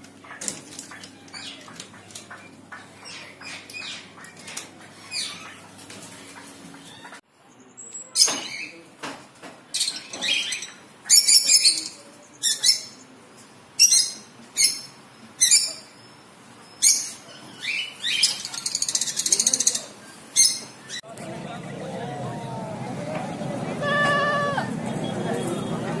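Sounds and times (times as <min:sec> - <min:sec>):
birds chirping high-pitched: 0:00.2 - 0:08.8, 0:09.7 - 0:13.2, 0:13.8 - 0:21.1
fast rattling bird trill: 0:16.8 - 0:20.6.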